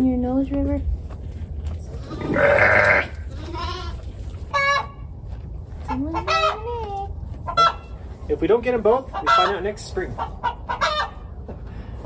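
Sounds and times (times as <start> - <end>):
lamb bleating: 2.1 - 4.0.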